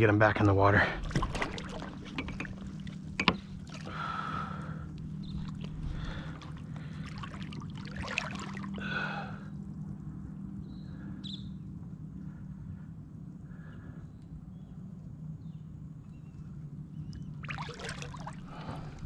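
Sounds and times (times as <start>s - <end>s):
water splashing and trickling: 0.7s - 9.4s, 17.3s - 19.0s.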